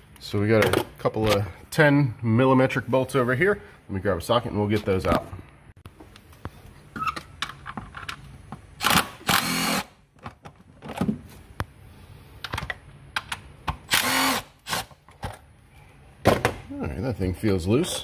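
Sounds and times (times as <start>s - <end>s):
cordless power tool running: 13.9s - 14.8s.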